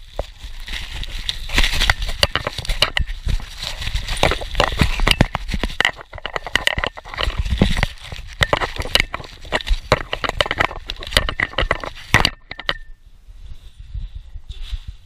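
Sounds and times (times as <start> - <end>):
bubble wrap popping: 0.0 - 12.1.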